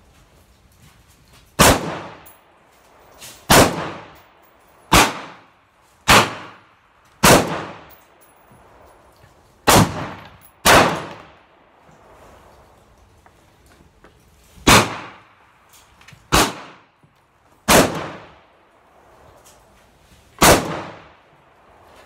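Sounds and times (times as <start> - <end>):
rifle shots with ringing echo: 1.6 - 2.3, 3.5 - 4.2, 4.9 - 8.0, 9.6 - 11.4, 14.6 - 15.3, 16.3 - 16.9, 17.6 - 18.4, 20.4 - 21.2.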